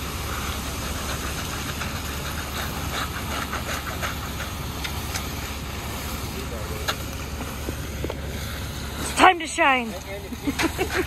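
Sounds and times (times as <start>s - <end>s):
concrete truck humming: 0.0s - 11.0s
wet concrete pouring down chute: 0.0s - 11.0s.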